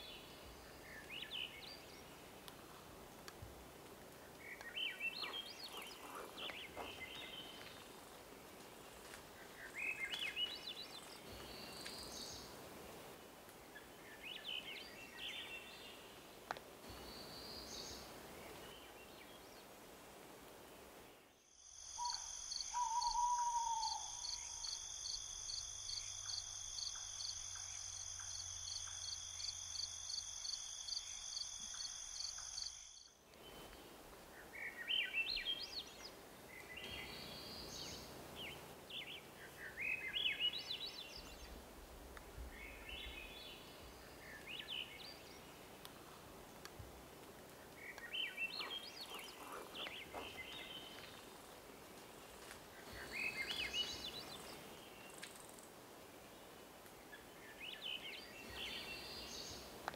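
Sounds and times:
songbird singing: 0:00.0 - 0:03.3, 0:04.0 - 0:19.9, 0:20.7 - 0:59.9
faint forest background: 0:00.0 - 0:59.9
night insect chorus trilling: 0:21.5 - 0:33.2.

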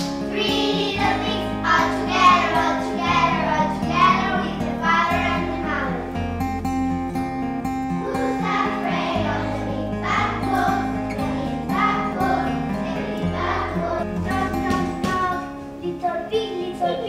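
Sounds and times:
children singing: 0:00.0 - 0:06.1, 0:08.0 - 0:15.5
instrumental backing music: 0:00.0 - 0:17.0.

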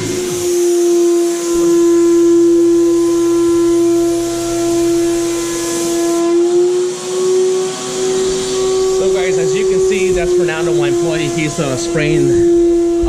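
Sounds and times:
spray gun hiss: 0:00.0 - 0:12.7
turbine sprayer whine: 0:00.0 - 0:13.0.

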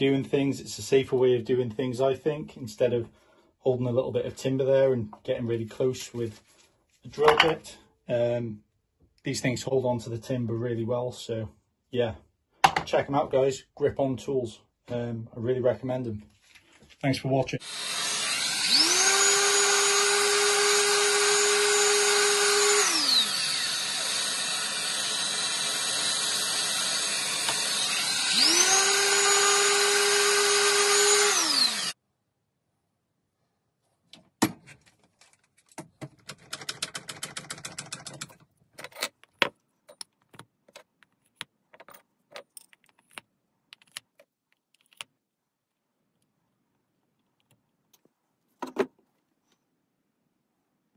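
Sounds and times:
dust extractor noise: 0:17.6 - 0:32.0
orbital sander motor: 0:17.6 - 0:32.0.

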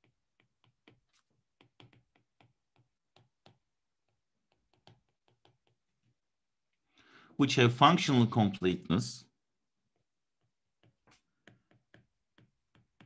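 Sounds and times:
stylus tapping on tablet screen: 0:00.0 - 0:06.1, 0:09.9 - 0:13.0.

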